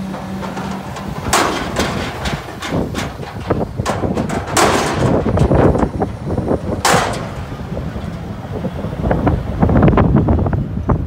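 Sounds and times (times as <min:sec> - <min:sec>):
small knocks: 0:00.0 - 0:06.1
dumpster crashing and clattering: 0:00.0 - 0:08.2
truck engine running: 0:00.0 - 0:11.0.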